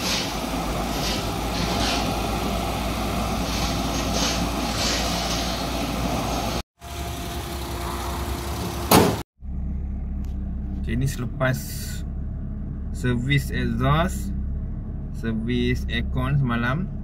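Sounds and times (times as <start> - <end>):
car engine idling: 5.7 - 17.0.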